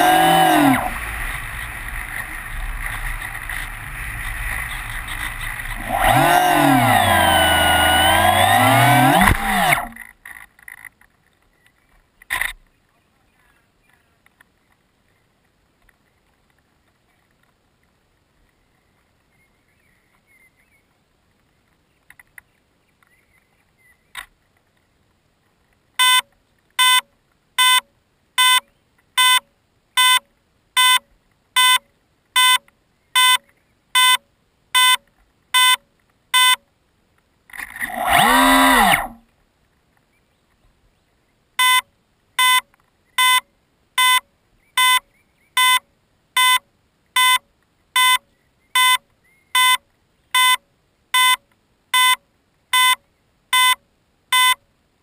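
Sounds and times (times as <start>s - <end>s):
warbling electronic tone: 0.0s - 10.0s
short electronic beeps: 26.0s - 30.2s, 30.8s - 33.4s, 34.0s - 35.0s, 35.6s - 36.6s, 41.6s - 49.0s, 49.6s - 49.8s, 50.4s - 50.6s, 51.2s - 51.4s, 52.0s - 54.6s.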